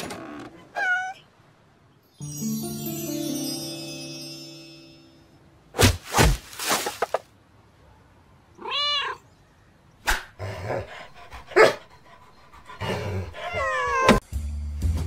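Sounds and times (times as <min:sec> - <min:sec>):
cat meowing: 0:00.7 - 0:01.2, 0:08.6 - 0:09.2, 0:13.4 - 0:14.2.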